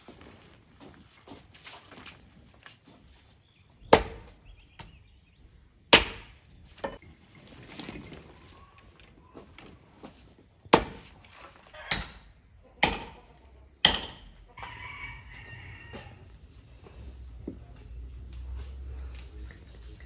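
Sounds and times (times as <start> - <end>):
axe chopping branches: 3.9 - 4.3, 5.9 - 6.4, 10.7 - 13.2, 13.8 - 14.3
rooster crowing: 14.5 - 17.1.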